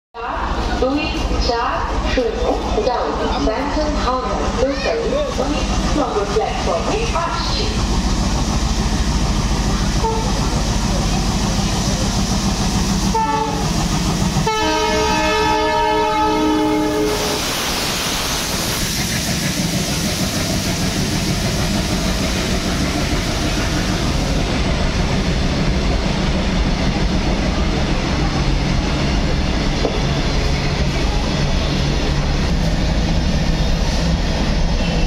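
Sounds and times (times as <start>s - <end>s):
locomotive horn blast: 10.0s - 10.5s, 13.1s - 13.7s, 14.4s - 17.5s.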